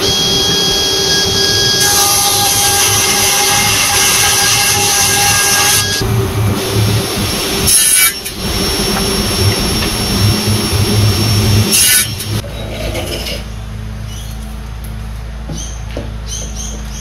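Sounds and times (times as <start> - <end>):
saw cutting through board: 0.0 - 12.4
table saw running: 0.0 - 12.4.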